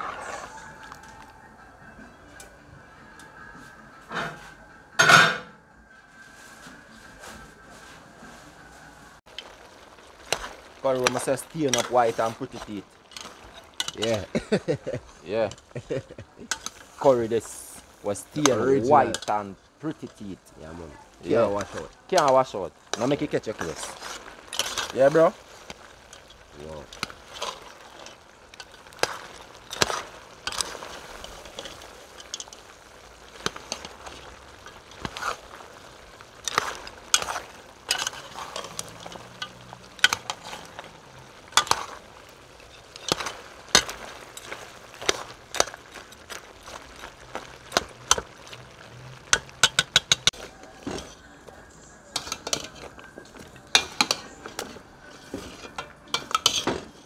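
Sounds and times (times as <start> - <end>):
food sizzling: 0.0 - 57.0
metal spoon scraping a pot: 21.4 - 51.3, 52.0 - 57.0.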